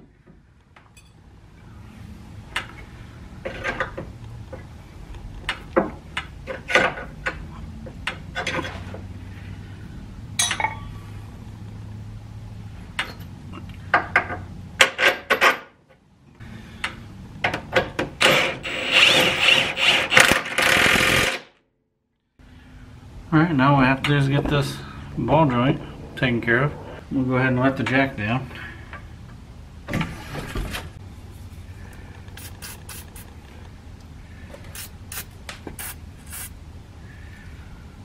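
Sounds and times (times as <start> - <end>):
impact wrench bursts: 18.2 - 21.5.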